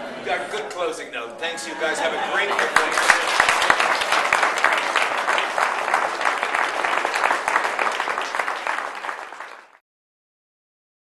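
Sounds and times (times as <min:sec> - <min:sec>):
audience applauding: 0:01.9 - 0:09.8.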